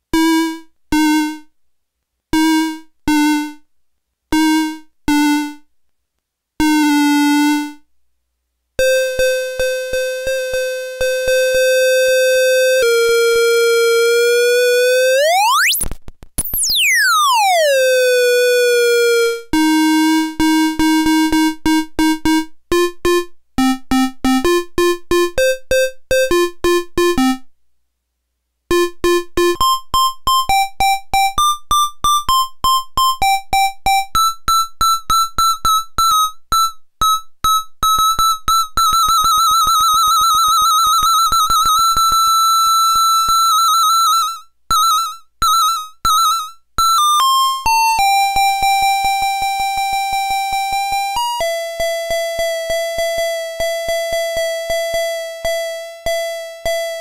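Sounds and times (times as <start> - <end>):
buzzy toy keyboard notes: 8.8 - 15.8, 28.7 - 57.0.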